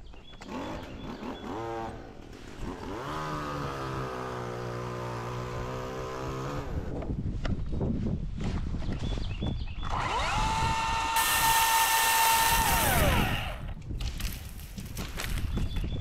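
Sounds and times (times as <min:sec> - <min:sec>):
chainsaw revving: 0:00.4 - 0:06.9, 0:09.9 - 0:13.8.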